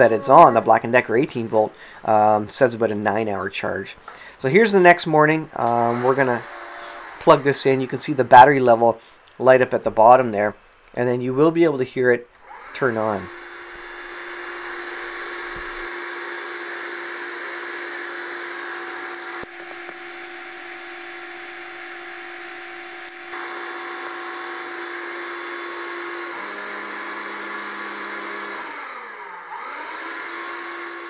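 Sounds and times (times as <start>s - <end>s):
stick vacuum motor whine: 5.6s - 8.4s, 12.4s - 31.0s.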